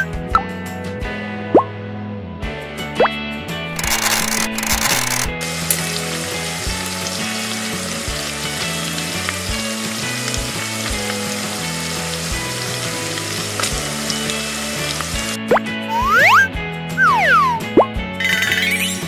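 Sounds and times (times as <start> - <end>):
soft background music: 0.0 - 19.0
food sizzling in a pan: 5.4 - 15.4.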